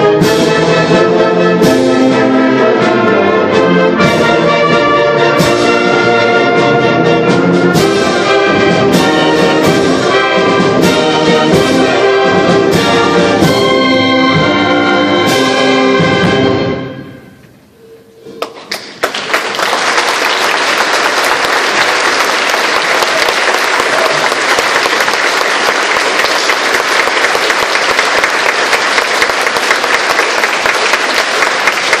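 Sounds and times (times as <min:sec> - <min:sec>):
concert band chord: 0:00.0 - 0:18.0
audience applause: 0:18.4 - 0:32.0.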